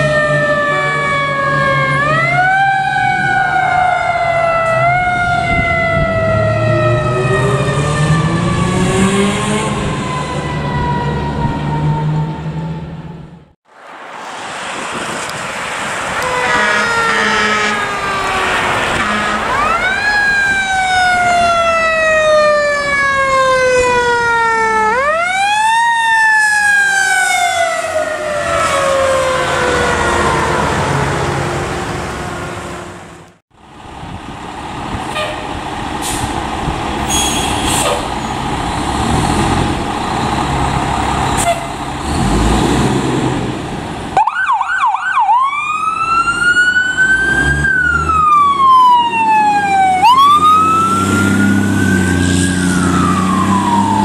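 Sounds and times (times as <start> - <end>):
fire truck siren winding: 0.0 - 12.9, 16.2 - 31.3, 44.2 - 54.0
electronic siren yelping and wailing: 0.0 - 13.0, 16.2 - 31.4, 44.2 - 54.0
fire truck engine running: 29.1 - 37.1, 38.0 - 42.1.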